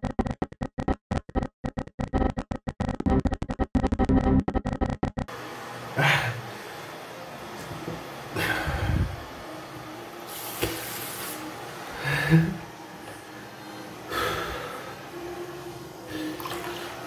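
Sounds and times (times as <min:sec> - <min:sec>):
person breathing: 0:08.4 - 0:09.2, 0:12.0 - 0:12.5, 0:13.4 - 0:15.1.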